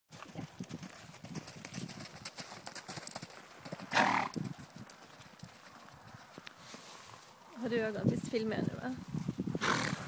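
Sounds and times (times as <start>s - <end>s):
horse hoofbeats on dirt: 0.1s - 6.9s.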